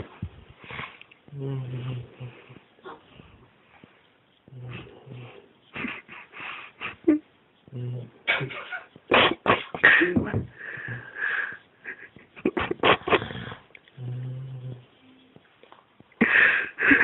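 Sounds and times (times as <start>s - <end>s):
stifled breathy giggles: 4.7s - 13.7s, 16.2s - 17.0s.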